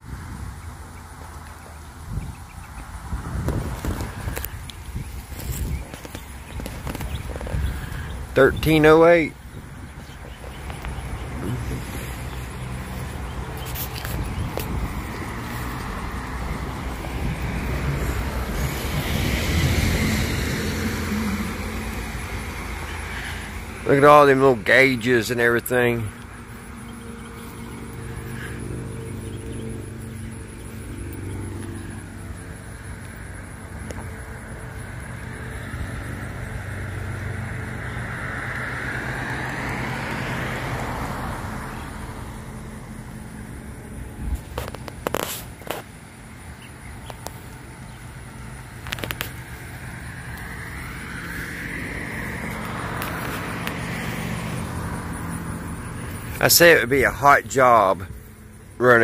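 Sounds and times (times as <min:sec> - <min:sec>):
vehicle passing by: 0:00.0 - 0:59.0.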